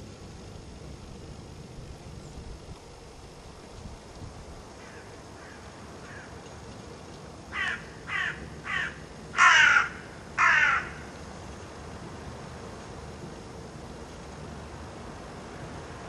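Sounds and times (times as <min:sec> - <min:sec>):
faint steady hiss: 0:00.0 - 0:16.0
crow cawing: 0:04.8 - 0:06.3, 0:07.5 - 0:11.1.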